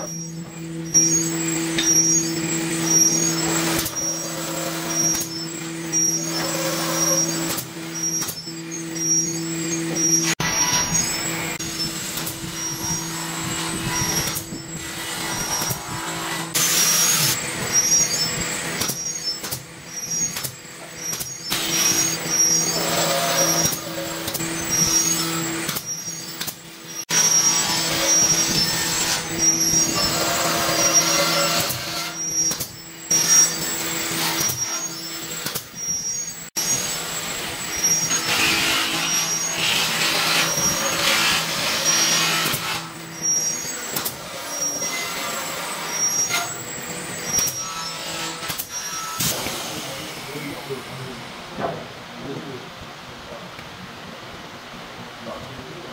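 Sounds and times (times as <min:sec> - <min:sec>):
power drill: 0:00.0 - 0:51.2
pneumatic nail gun shots: 0:03.0 - 0:05.4, 0:06.4 - 0:08.5, 0:15.2 - 0:46.6, 0:47.2 - 0:47.7, 0:48.3 - 0:50.4.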